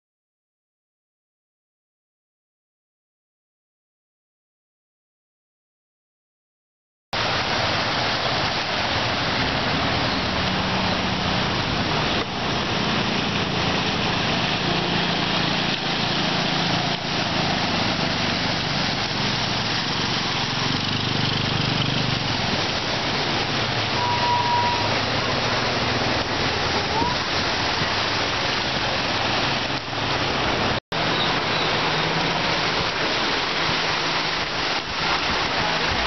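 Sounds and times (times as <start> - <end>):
vehicle engines humming: 7.2 - 34.9
floodwater rushing: 7.2 - 36.0
motorcycle riding through water: 7.2 - 36.0.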